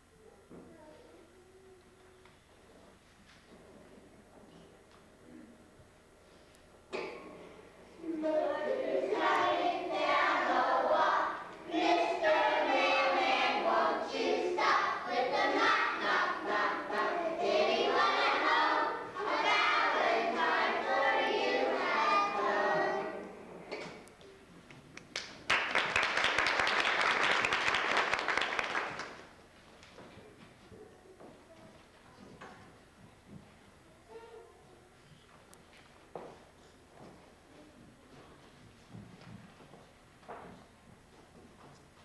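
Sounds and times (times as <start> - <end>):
children singing together: 8.0 - 24.1
applause: 25.1 - 29.3.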